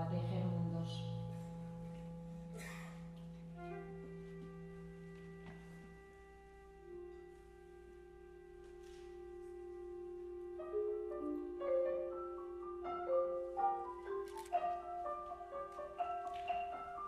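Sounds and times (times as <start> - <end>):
chamber ensemble music: 0.0 - 17.0.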